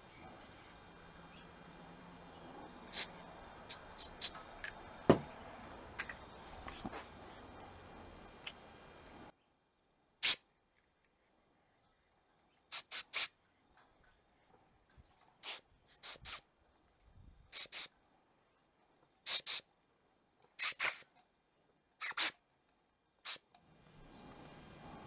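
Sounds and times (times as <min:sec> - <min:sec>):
spray nozzle hissing bursts: 0:02.7 - 0:05.5, 0:10.2 - 0:10.4, 0:12.7 - 0:13.4, 0:15.4 - 0:16.4, 0:17.5 - 0:17.9, 0:19.3 - 0:19.6, 0:20.6 - 0:21.1, 0:22.0 - 0:22.4, 0:23.2 - 0:23.5.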